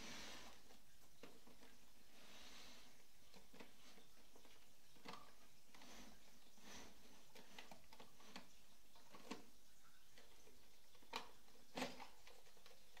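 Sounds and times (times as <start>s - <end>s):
light plastic clicks and knocks: 7.2s - 9.5s, 10.1s - 13.0s.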